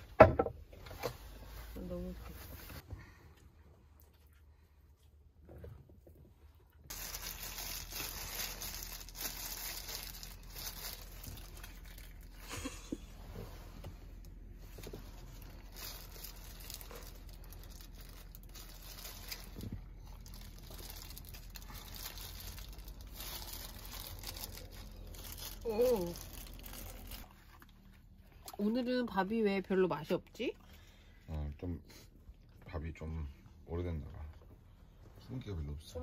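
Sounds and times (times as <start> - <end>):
plastic glove crinkling: 6.9 - 12.5, 14.8 - 27.4.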